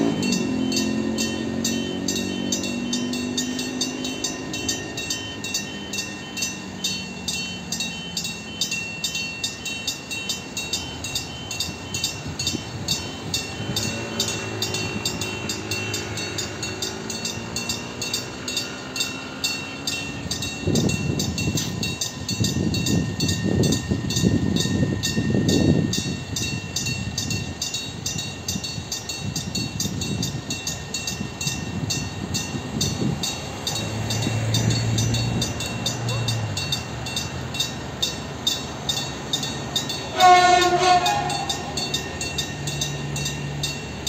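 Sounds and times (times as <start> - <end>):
heavy train rumble: 0.0 - 44.0
level crossing bell ringing: 0.0 - 44.0
train engine: 0.0 - 44.0.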